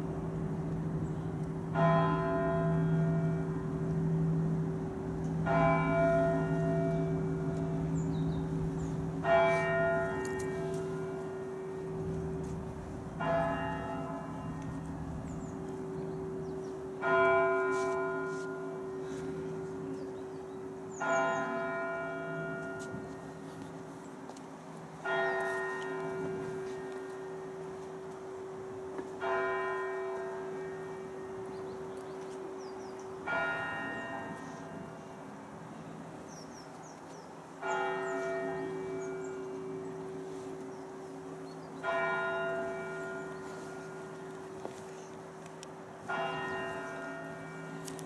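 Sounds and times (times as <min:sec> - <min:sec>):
steady deep hum: 0:00.0 - 0:17.0
church bell tolling: 0:00.0 - 0:23.8, 0:25.0 - 0:35.5, 0:37.6 - 0:44.9, 0:46.0 - 0:48.0.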